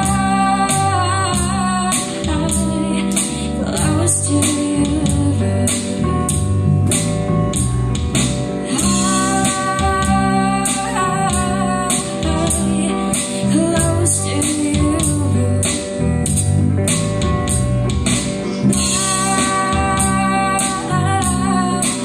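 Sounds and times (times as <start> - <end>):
woman singing: 0.0 - 6.4, 8.7 - 16.5, 18.7 - 22.0
guitars strumming: 0.0 - 22.0.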